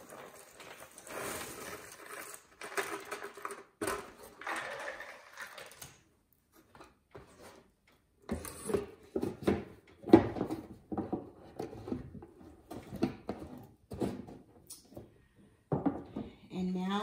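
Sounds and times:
puzzle pieces clattering: 0.0 - 6.0.

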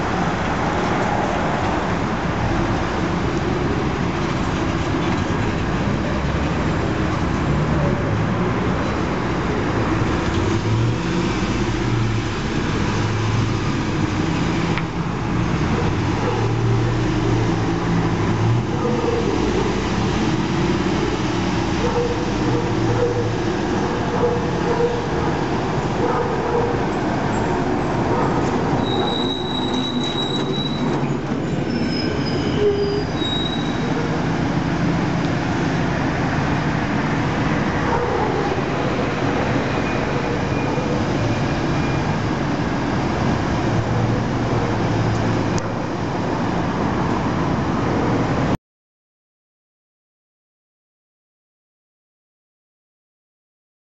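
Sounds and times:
street traffic: 0.0 - 48.6
short high squeaks: 28.8 - 34.0.

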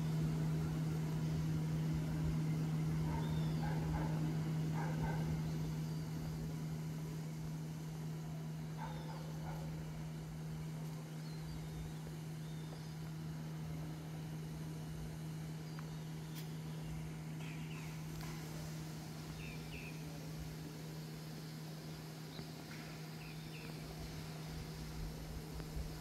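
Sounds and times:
low machine hum: 0.0 - 26.0
faint bird chirps: 2.5 - 4.2.

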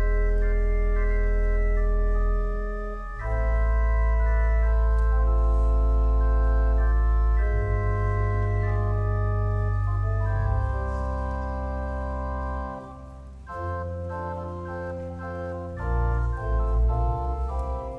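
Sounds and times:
church organ chords: 0.0 - 17.9.

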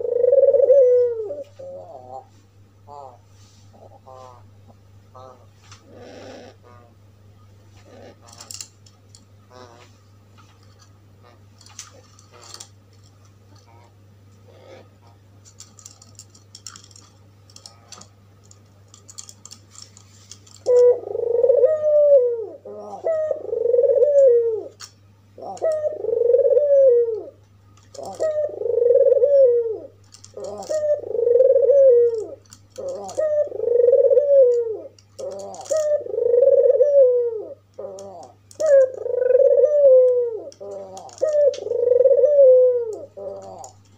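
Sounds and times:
dove cooing: 0.0 - 7.0, 7.7 - 8.7, 9.5 - 10.0, 20.6 - 43.9
low steady hum: 0.0 - 43.9.

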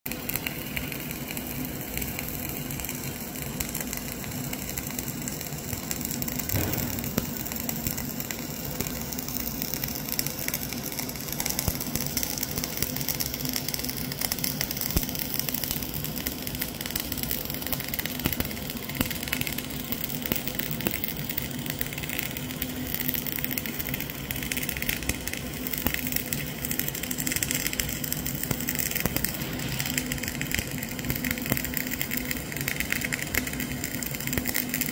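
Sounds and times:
welding arc crackling: 0.1 - 34.9
low hum: 6.4 - 8.3, 27.4 - 31.9.

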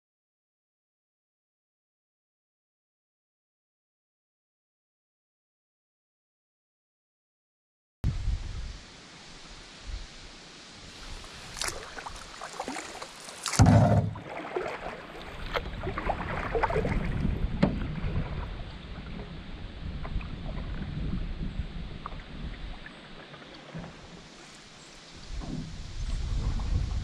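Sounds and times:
paddle strokes splashing: 10.8 - 27.0
water lapping against hull: 10.9 - 27.0
sharp knocks: 13.5 - 14.2
loud thump: 13.6 - 14.2.

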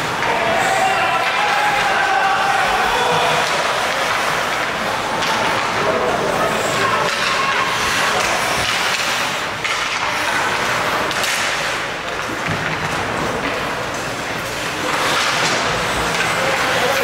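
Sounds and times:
indistinct voices: 0.0 - 11.9
hockey sticks hitting puck: 0.0 - 17.0
skate blades scraping ice: 2.4 - 11.9, 13.2 - 17.0.

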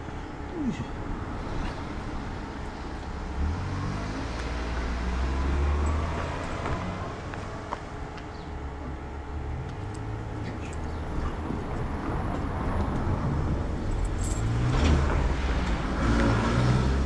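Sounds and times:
car rumbling past: 1.1 - 8.6, 11.0 - 17.0.

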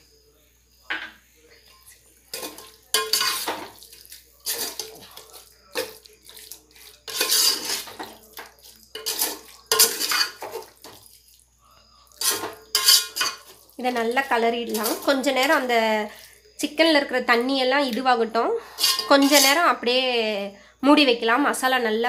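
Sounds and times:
steel ladle scraping a pot: 2.3 - 11.0, 12.1 - 13.6, 14.7 - 15.7, 18.6 - 19.6.

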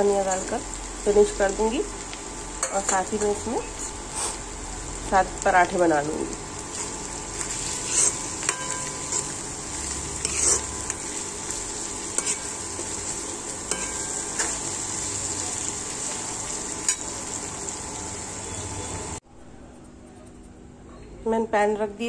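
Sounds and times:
frying sizzle: 0.0 - 19.2
metal spoon scraping a wok: 6.8 - 11.3, 12.1 - 14.6.

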